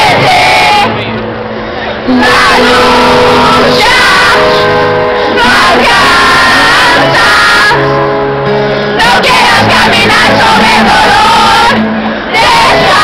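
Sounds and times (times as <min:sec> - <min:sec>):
piano: 0:00.0 - 0:13.0.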